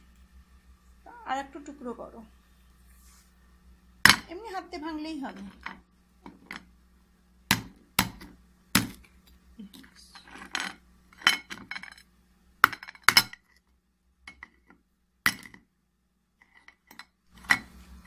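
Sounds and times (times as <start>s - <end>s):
soft scraping: 2.4s - 3.5s.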